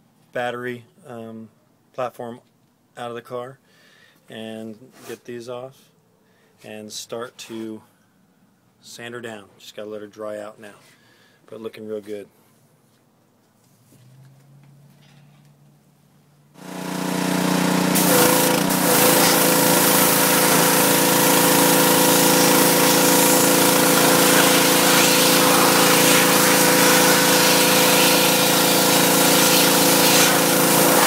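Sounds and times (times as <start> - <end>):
pressure washer motor hum: 16.6 - 31.0
water jet hissing: 16.7 - 31.0.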